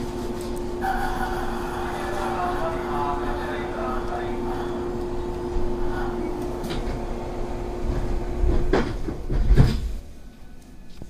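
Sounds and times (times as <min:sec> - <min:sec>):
standing train humming: 0:00.0 - 0:11.0
train doors sliding shut: 0:06.0 - 0:10.2.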